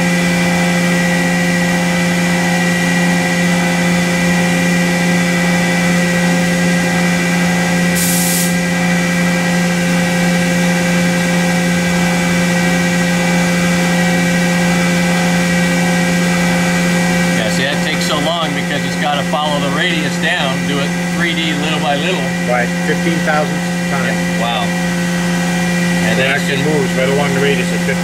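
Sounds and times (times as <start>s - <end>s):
milling machine humming: 0.0s - 28.0s
brief hiss: 8.0s - 8.6s.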